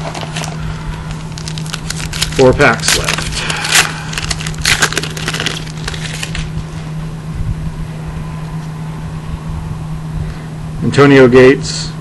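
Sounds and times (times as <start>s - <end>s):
foil wrapper crinkling and tearing: 0.0s - 6.6s
steady low hum: 0.0s - 12.0s.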